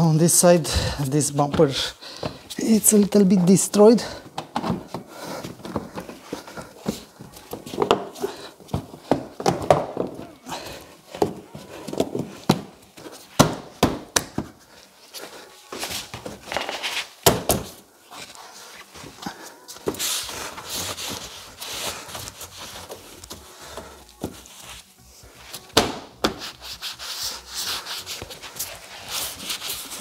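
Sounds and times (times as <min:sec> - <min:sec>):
rubbing and handling noise: 0:14.3 - 0:30.0.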